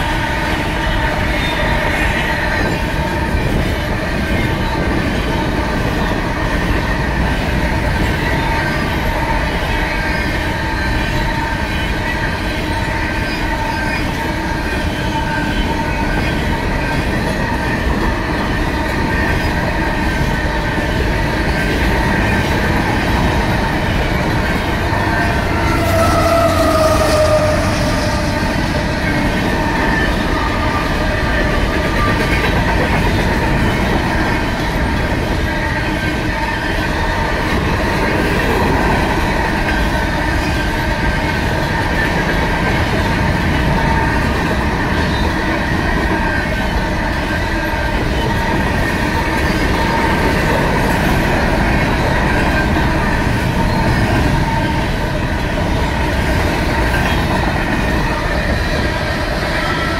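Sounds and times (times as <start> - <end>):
train wheels rumbling on rails: 0.0 - 59.9
crossing bells ringing: 15.6 - 59.9.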